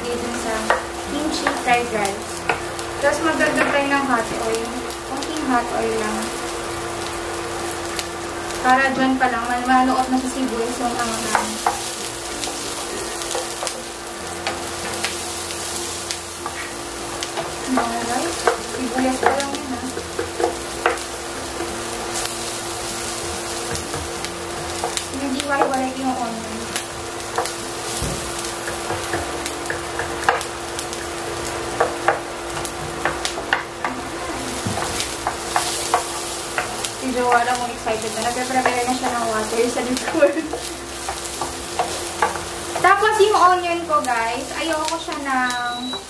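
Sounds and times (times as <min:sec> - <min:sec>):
onion sizzling in frying pan: 0:00.0 - 0:46.0.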